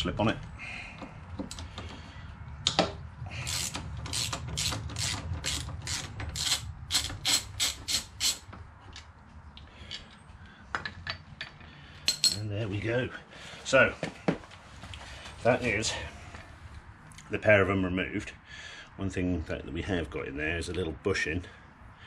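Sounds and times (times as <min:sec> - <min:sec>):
socket ratchet clicking: 0:03.4 - 0:08.5.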